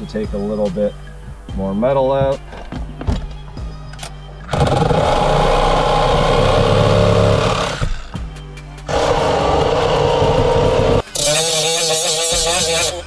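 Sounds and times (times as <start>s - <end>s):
power tool cutting sheet metal: 4.5s - 8.0s, 8.9s - 13.0s.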